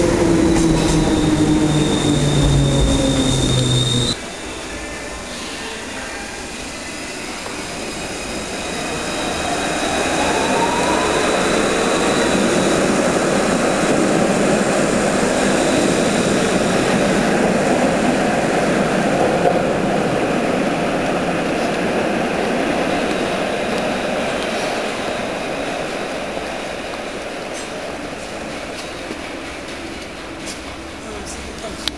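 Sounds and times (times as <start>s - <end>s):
tram motor whine: 0.0s - 27.4s
steel wheels rumbling on rail: 0.0s - 31.9s.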